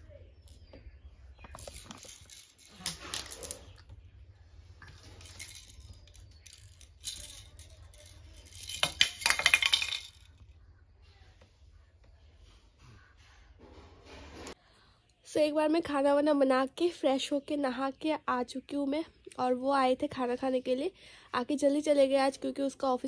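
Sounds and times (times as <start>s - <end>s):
plastic baby rattles shaken: 1.5s - 3.8s, 4.8s - 10.4s.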